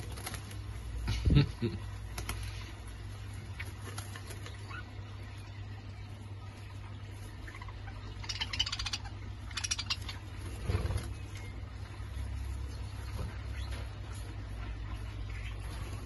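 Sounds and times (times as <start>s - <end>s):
budgerigars scratchy clicking: 7.4s - 11.4s.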